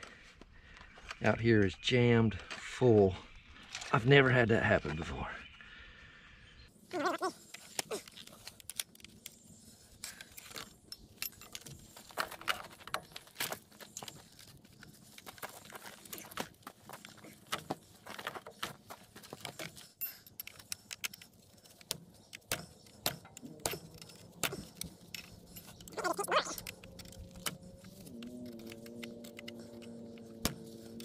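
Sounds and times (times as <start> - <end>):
metallic clicks of chainsaw chain: 7.3 - 15.2, 19.2 - 31.0
humming drone: 8.8 - 31.0.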